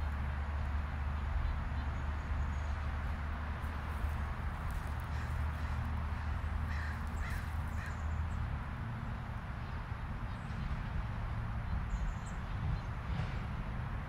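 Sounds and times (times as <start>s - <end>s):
distant road traffic rumble: 0.0s - 14.0s
crows cawing: 5.0s - 8.0s.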